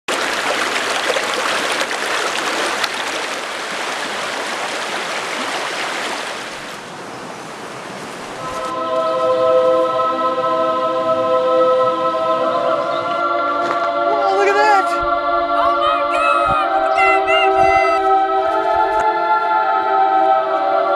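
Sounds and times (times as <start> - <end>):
water rushing over stones: 0.1 - 6.9
choir holding a chord: 8.4 - 20.9.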